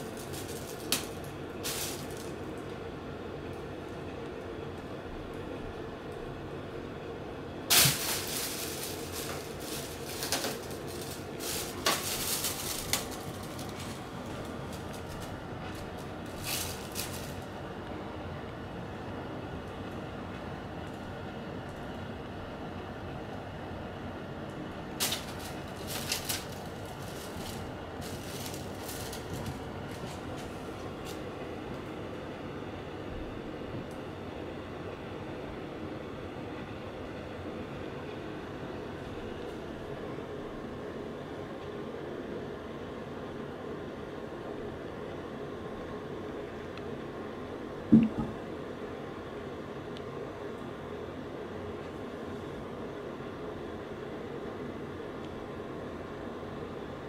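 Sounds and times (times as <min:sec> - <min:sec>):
plastic bag crinkling: 0:00.0 - 0:02.5, 0:07.7 - 0:17.6, 0:25.0 - 0:31.2
air purifier fan hum: 0:00.0 - 0:57.0.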